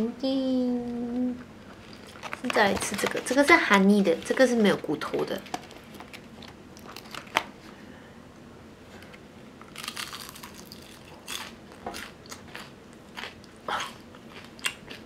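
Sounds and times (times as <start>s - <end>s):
chewing crispy fried chicken: 9.7s - 15.0s.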